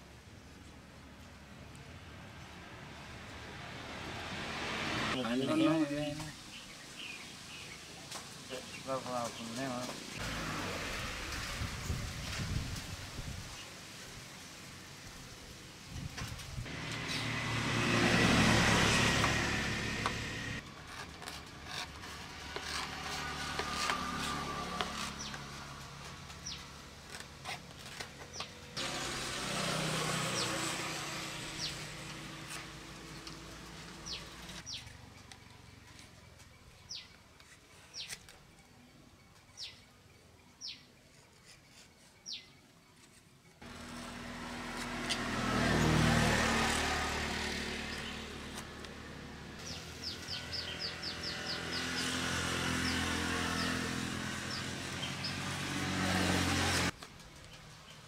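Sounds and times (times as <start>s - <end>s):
vehicles passing by: 0.0s - 38.1s, 43.6s - 58.0s
knife cutting wood strips: 16.7s - 34.9s, 43.0s - 57.5s.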